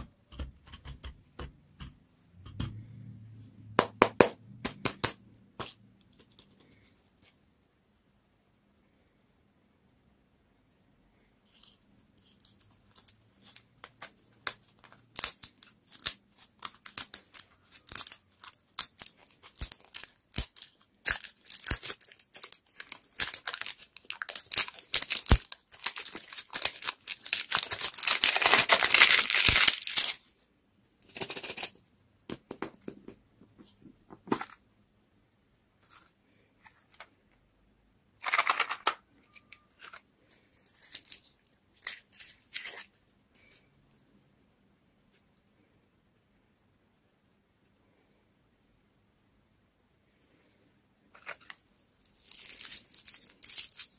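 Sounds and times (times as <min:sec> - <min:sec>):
plastic wrapper crackling and tearing: 0:11.5 - 0:30.3, 0:39.8 - 0:42.9, 0:51.2 - 0:53.9.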